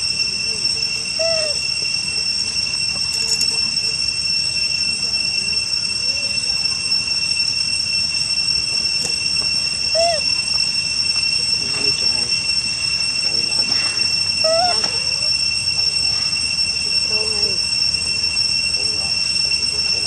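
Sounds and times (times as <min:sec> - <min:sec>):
high-pitched insect drone: 0:00.0 - 0:20.0
short chirping calls: 0:09.9 - 0:10.6, 0:14.0 - 0:15.2.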